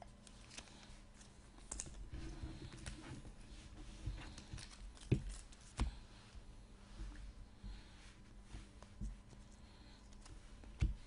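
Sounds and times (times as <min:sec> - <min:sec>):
cards rustling: 0:04.3 - 0:06.0.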